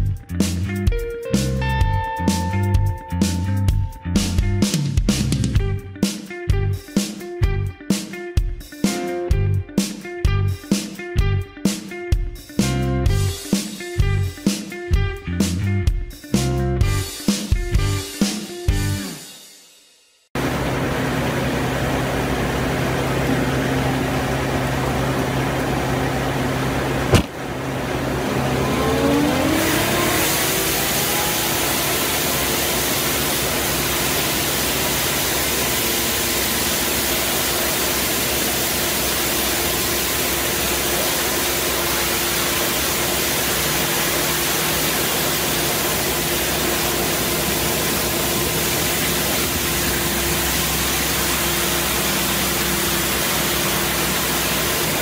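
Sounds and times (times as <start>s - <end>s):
street sweeper engine humming: 0.1s - 5.8s, 20.4s - 55.0s
whine rising in pitch: 20.4s - 55.0s
sharp click: 27.1s - 27.4s.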